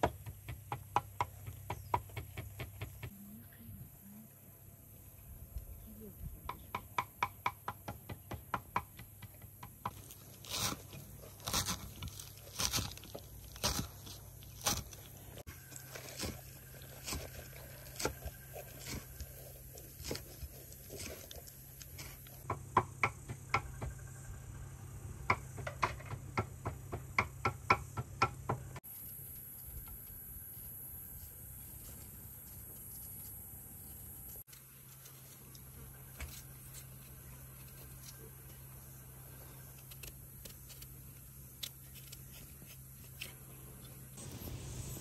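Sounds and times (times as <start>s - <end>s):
scraping vegetable: 9.9s - 22.4s.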